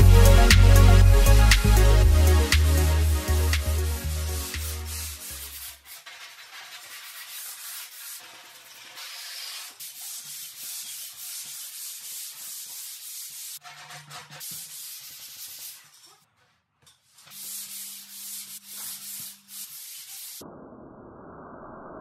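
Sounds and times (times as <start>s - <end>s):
sandpaper rasping on fibreglass: 3.6s - 16.4s, 17.0s - 20.4s.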